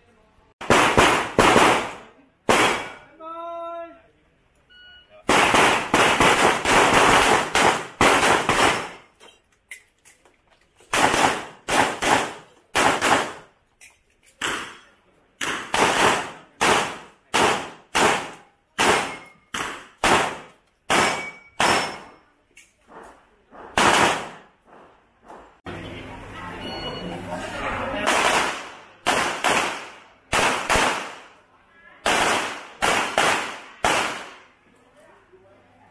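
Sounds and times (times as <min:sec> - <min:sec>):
pistol shots: 0:00.6 - 0:03.1, 0:05.3 - 0:09.1, 0:10.9 - 0:13.5, 0:15.4 - 0:22.2, 0:23.7 - 0:24.5, 0:28.1 - 0:31.3, 0:32.0 - 0:34.4.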